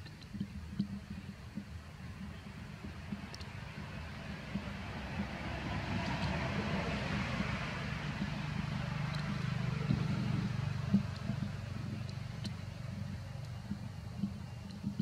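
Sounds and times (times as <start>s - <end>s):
motor vehicle engine rumble: 1.0s - 15.0s.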